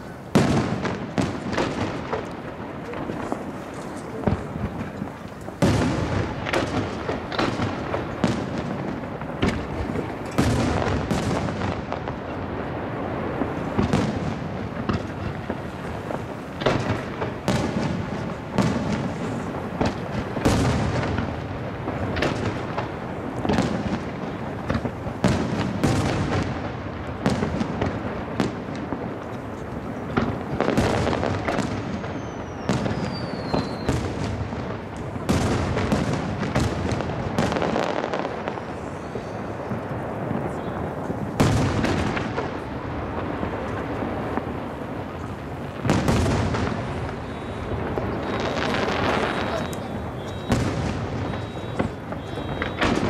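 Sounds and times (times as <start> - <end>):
firework shells bursting: 28.6 - 53.0
falling firework whistle: 30.6 - 34.4, 37.4 - 42.4, 45.2 - 53.0.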